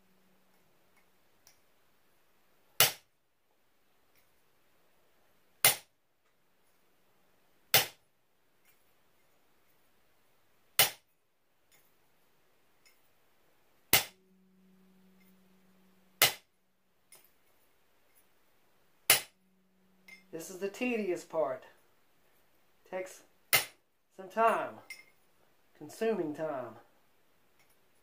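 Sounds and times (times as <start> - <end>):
hammer striking metal punch: 13.9 - 14.2, 16.2 - 16.4.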